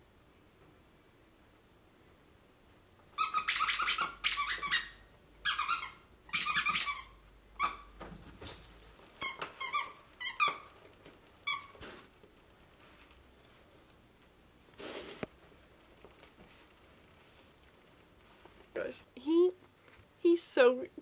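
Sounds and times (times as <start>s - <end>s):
dog toy squeaking: 3.2s - 7.9s, 9.2s - 10.8s, 11.4s - 11.8s.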